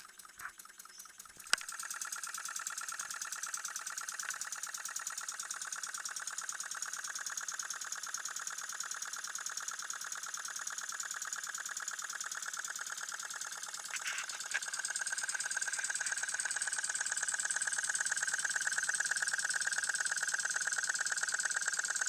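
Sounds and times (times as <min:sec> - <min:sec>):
small piston engine clattering: 0:00.0 - 0:22.0
sharp clicks: 0:01.2 - 0:02.0, 0:04.2 - 0:04.6.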